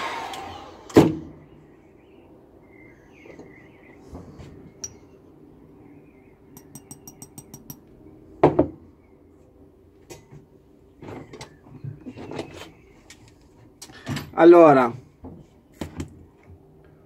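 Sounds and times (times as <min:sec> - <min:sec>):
wire clinking against glass jar: 0:06.6 - 0:07.8.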